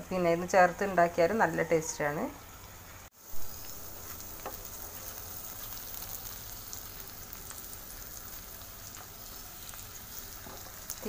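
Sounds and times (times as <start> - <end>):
oil sizzling in a frying pan: 0.0 - 11.0
faint crackles: 2.6 - 11.0.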